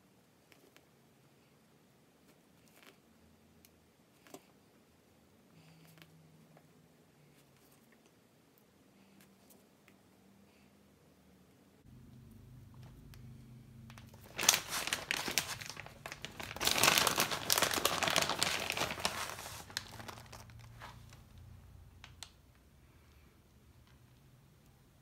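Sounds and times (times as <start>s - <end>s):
plastic bag crinkling: 13.9s - 21.4s.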